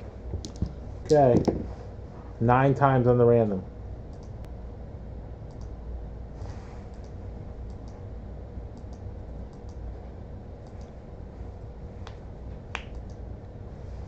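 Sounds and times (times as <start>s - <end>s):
low room hum: 0.0s - 14.0s
computer mouse clicking: 5.5s - 5.7s, 8.8s - 9.8s, 10.6s - 10.9s.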